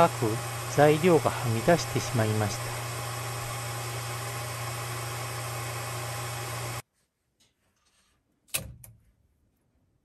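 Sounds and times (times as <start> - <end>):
printer fans humming: 0.0 - 6.8.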